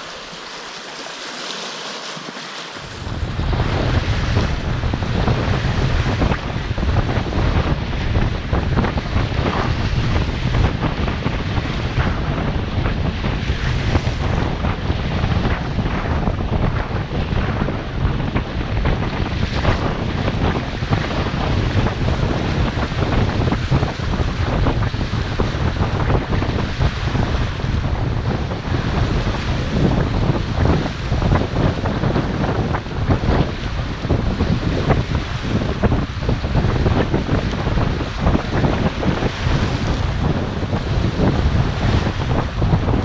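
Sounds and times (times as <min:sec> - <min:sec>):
water lapping: 0:00.0 - 0:06.7
waves splashing on rocks: 0:00.0 - 0:07.4
wind buffeting microphone: 0:00.0 - 0:43.0.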